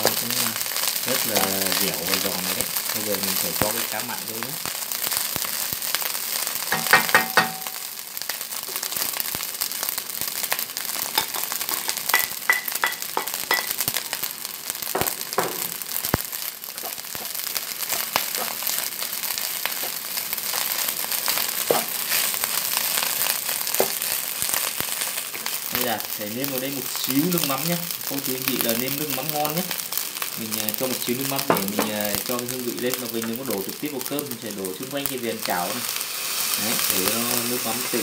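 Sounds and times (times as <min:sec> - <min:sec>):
rice sizzling in a pan: 0:00.0 - 0:38.0
wooden spatula scraping and tapping: 0:21.7 - 0:21.9.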